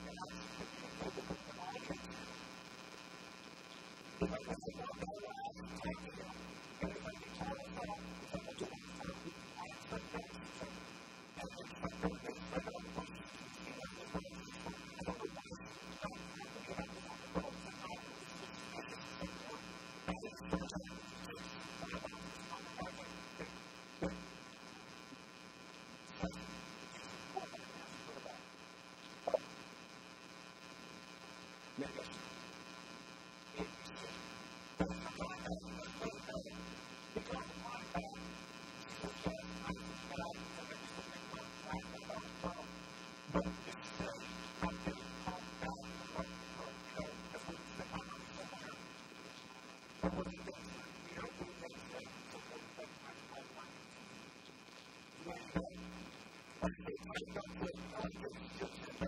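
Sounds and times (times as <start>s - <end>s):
electrical mains hum and buzz: 0.0s - 59.0s
clicks and crackles: 8.2s - 32.4s.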